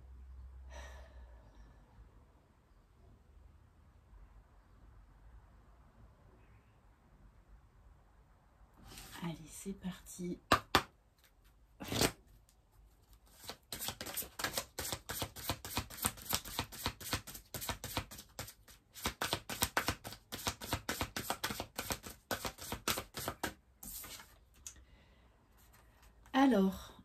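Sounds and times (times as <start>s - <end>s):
cards being shuffled: 10.5s - 24.8s.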